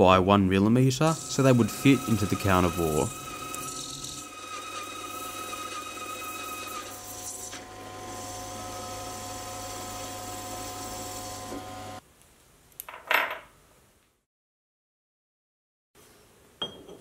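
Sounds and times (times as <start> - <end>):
faint metal cutting: 1.0 - 12.0
lathe motor hum: 1.0 - 12.0.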